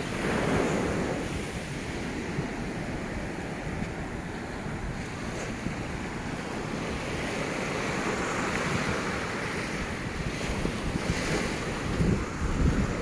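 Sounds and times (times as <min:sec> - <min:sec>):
waves washing onto beach: 0:00.0 - 0:13.0
wind buffeting microphone: 0:00.0 - 0:13.0.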